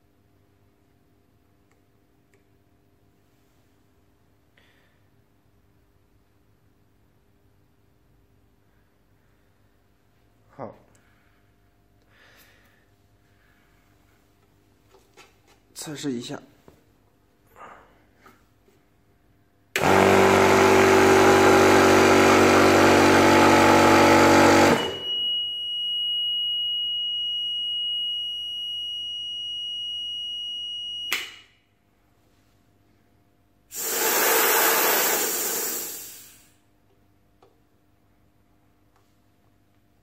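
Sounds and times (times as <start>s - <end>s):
click: 1.7s - 2.5s, 31.1s - 31.4s
air compressor running: 19.8s - 25.1s, 33.7s - 36.6s
high alarm beep: 24.5s - 31.2s
air hissing out: 33.7s - 36.6s.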